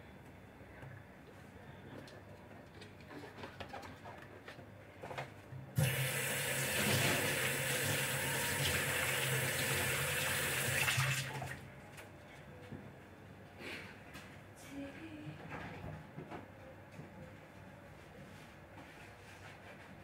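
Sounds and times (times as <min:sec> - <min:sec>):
water running into sink: 0:05.8 - 0:11.6.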